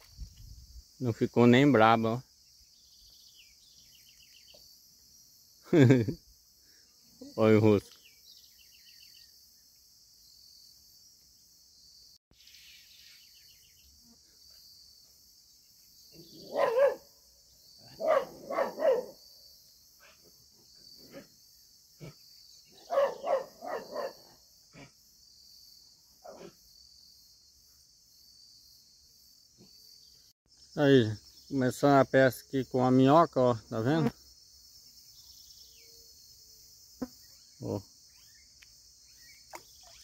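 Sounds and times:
insects chirring: 0:00.0 - 0:40.0
dog barking: 0:16.4 - 0:17.1, 0:17.8 - 0:19.2, 0:22.8 - 0:24.9, 0:26.2 - 0:26.6.

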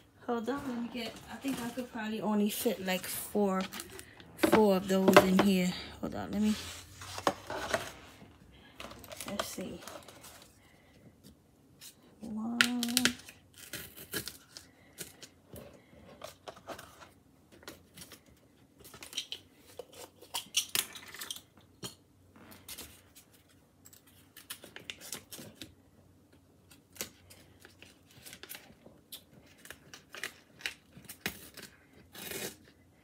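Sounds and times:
foil liners rustling and crinkling: 0:00.2 - 0:10.6.

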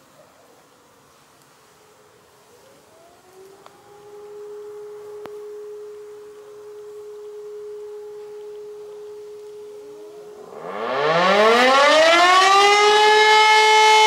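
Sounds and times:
distant civil defense siren: 0:02.5 - 0:14.0
nearer siren winding up: 0:10.0 - 0:14.0.

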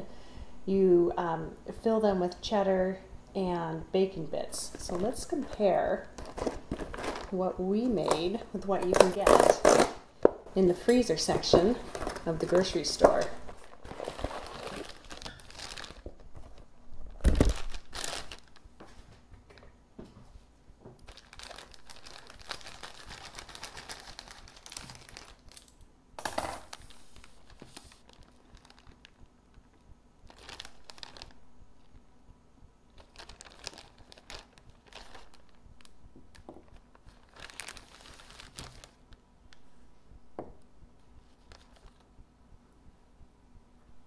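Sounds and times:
plastic packaging crinkling: 0:04.7 - 0:19.6, 0:21.0 - 0:29.2, 0:30.2 - 0:32.0, 0:33.0 - 0:39.6, 0:41.2 - 0:42.1.

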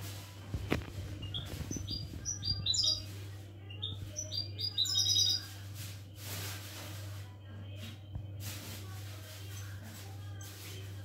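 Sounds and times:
steady low hum: 0:00.0 - 0:11.0
goldfinch twittering song: 0:01.2 - 0:05.6.

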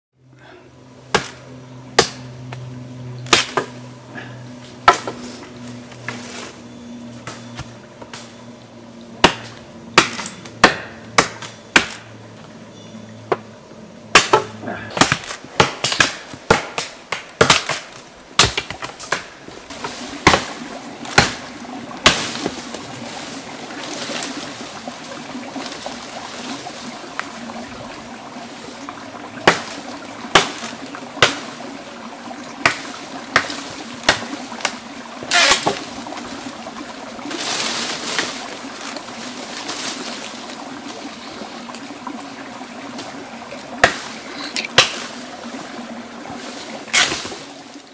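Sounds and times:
billhook chopping branches: 0:01.1 - 0:02.6, 0:03.2 - 0:03.8, 0:04.8 - 0:05.3, 0:09.2 - 0:12.1, 0:14.1 - 0:22.8, 0:29.4 - 0:31.5, 0:32.6 - 0:35.9, 0:43.8 - 0:45.1, 0:46.9 - 0:47.4.

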